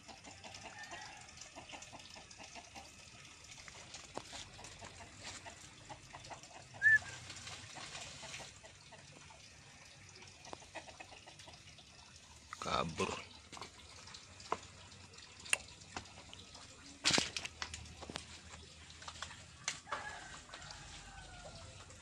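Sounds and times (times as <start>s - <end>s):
ticking and rustling in undergrowth: 3.6s - 9.2s, 16.0s - 22.0s
bird chirp: 6.8s - 7.2s.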